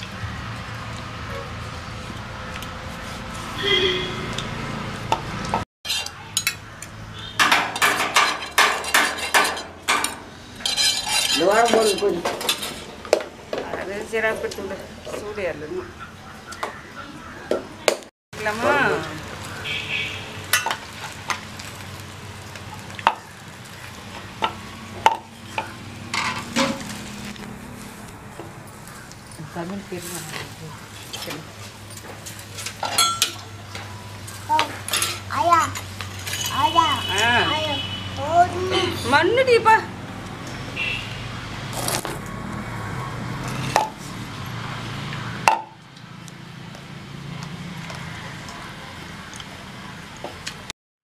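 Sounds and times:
kitchen utensils knocking: 7.4 - 13.9, 32.8 - 33.4.

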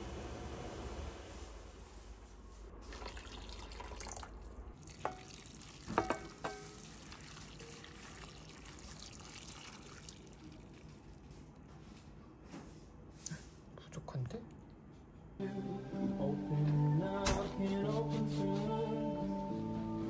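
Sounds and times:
liquid pouring hiss: 2.8 - 11.5
metal pan clinking: 5.9 - 6.9.

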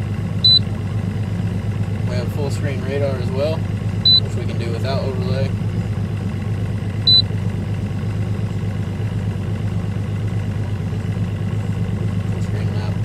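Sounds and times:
outboard motor idling: 0.0 - 13.0
short electronic beep: 0.4 - 0.6, 4.1 - 4.3, 7.1 - 7.3.

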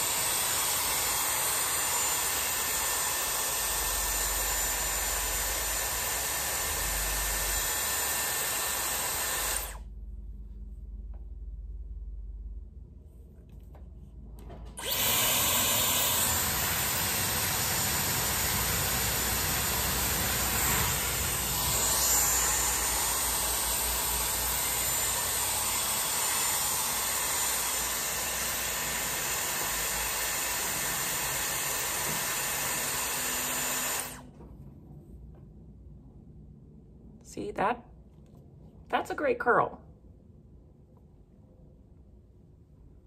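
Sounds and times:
hair styler blowing air: 0.0 - 9.9, 14.8 - 34.3.

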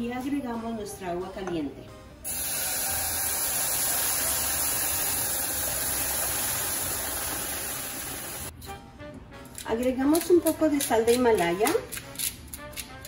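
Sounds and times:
hot pan hissing and sizzling: 2.3 - 8.5
water pouring into pot: 2.3 - 8.5.

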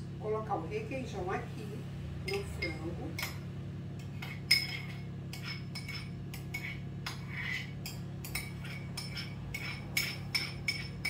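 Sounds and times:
metal spoon clinking on dishes: 2.3 - 3.4, 4.0 - 11.0.

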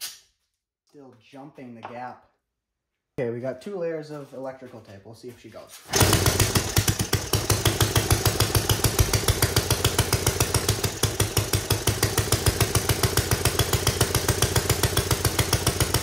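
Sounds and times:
single-cylinder engine running: 5.9 - 16.0.

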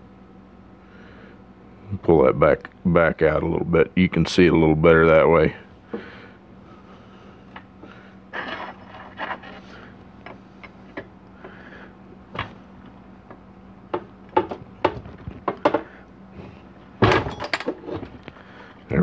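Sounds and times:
tools handled on metal workbench: 8.4 - 11.1, 17.0 - 18.2.

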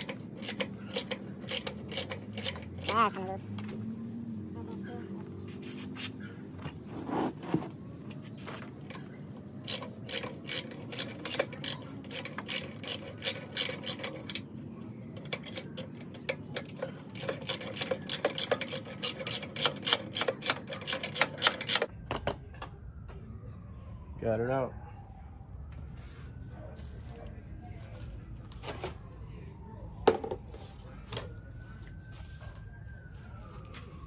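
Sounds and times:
socket ratchet clicking: 15.2 - 21.9.

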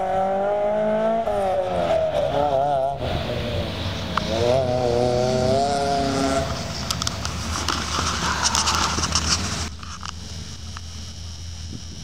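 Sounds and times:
rally car engine running hard: 0.0 - 12.0
noisy rush with crackles: 6.2 - 12.0.

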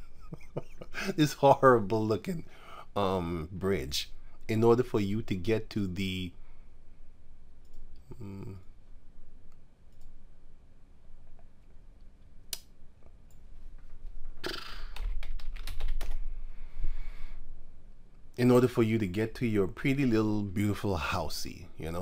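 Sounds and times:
keyboard typing: 14.7 - 16.2.

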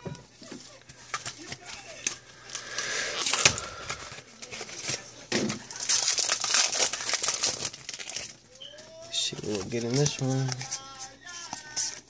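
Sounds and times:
foil wrapper crinkling and tearing: 1.0 - 12.0.

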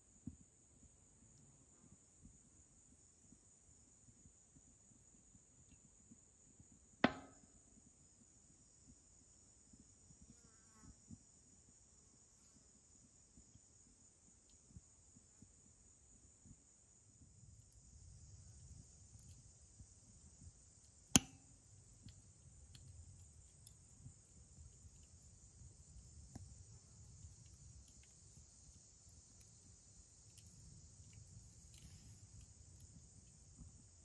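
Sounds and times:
high-pitched insect chorus: 1.0 - 34.0
faint ticks: 12.2 - 15.7, 16.4 - 34.0
sharp crack: 21.1 - 21.5.

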